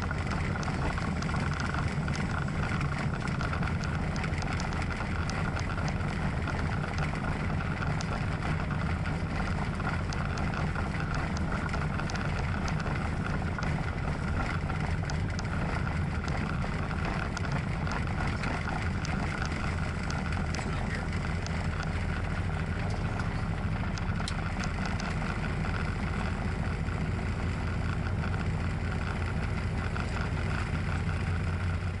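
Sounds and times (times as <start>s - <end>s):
light aircraft engine drone: 0.0s - 32.0s.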